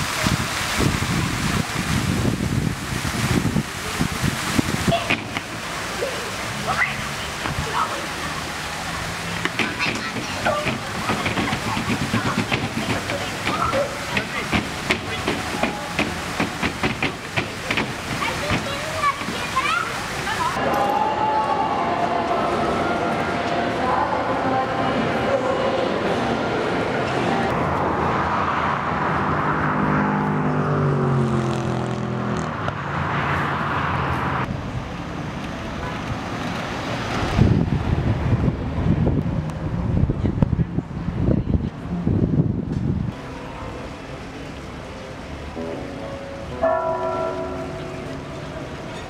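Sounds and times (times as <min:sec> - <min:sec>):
wind rumbling on microphone: 0:00.0 - 0:05.3, 0:34.2 - 0:43.2
fountain water splashing: 0:00.0 - 0:28.2, 0:34.4 - 0:41.9, 0:43.1 - 0:49.0
outdoor noise: 0:00.0 - 0:49.0
people's voices: 0:03.6 - 0:27.5
motor vehicle passing: 0:26.2 - 0:41.2.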